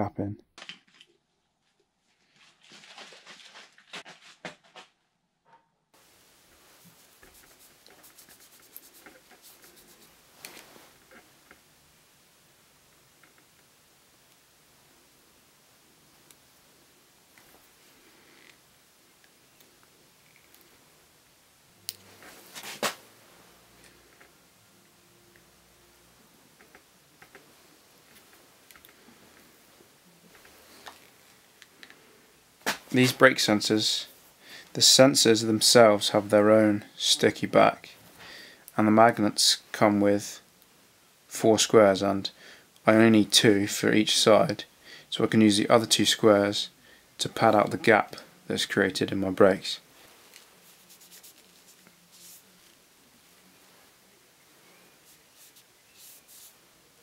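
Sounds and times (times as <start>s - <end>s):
steady faint hiss: 6.0s - 57.0s
cloth rustling and wiping: 6.4s - 11.3s, 22.0s - 23.6s, 49.9s - 56.7s.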